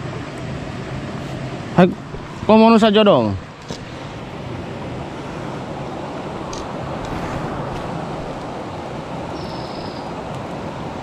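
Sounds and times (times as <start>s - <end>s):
river rushing: 0.0s - 11.0s
faint high chirp: 9.3s - 10.1s.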